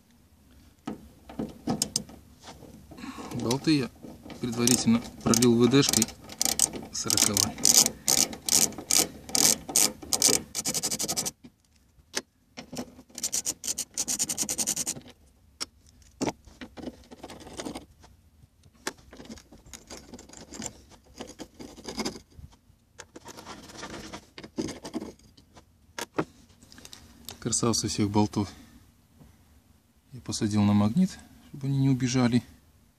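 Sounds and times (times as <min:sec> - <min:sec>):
metal bolts clinking and scraping: 0:00.9 - 0:11.2, 0:19.0 - 0:22.4, 0:23.0 - 0:26.1
socket ratchet clicking: 0:04.7 - 0:11.3.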